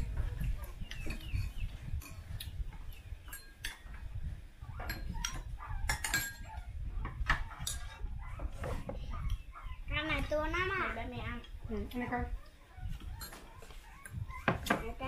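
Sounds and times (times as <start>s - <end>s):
chopsticks clinking porcelain bowls: 3.2s - 4.0s, 4.8s - 6.6s.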